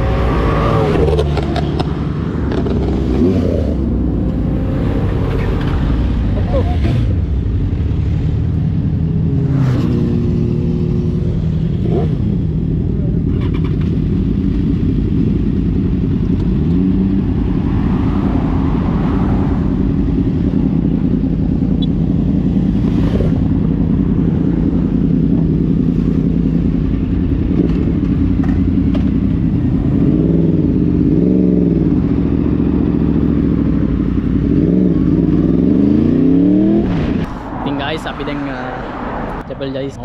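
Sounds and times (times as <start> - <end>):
motorcycle engines idling: 10.4 - 17.8, 18.4 - 35.6
motorcycle throttle blips: 20.0 - 36.2.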